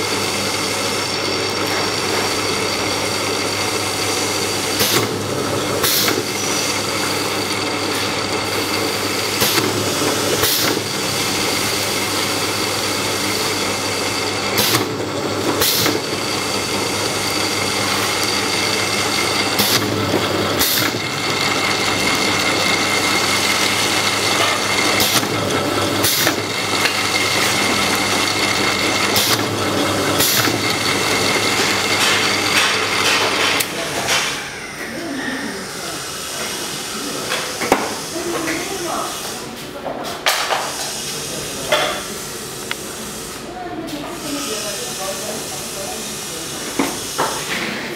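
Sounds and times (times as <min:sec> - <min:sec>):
motor and conveyor hum: 0:00.0 - 0:47.9
air cylinder strokes: 0:05.8 - 0:33.8.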